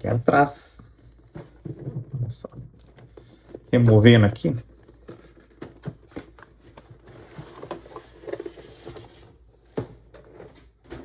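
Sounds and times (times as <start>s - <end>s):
cardboard sliding and rustling: 4.8s - 11.0s.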